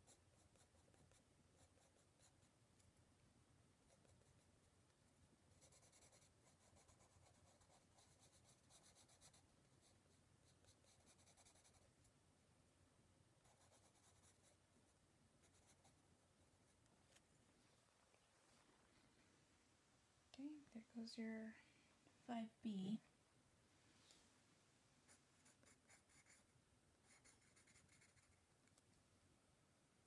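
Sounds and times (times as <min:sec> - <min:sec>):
pencil scratching on paper: 0:05.6 - 0:11.9, 0:13.4 - 0:14.6, 0:25.1 - 0:26.4, 0:27.1 - 0:28.4.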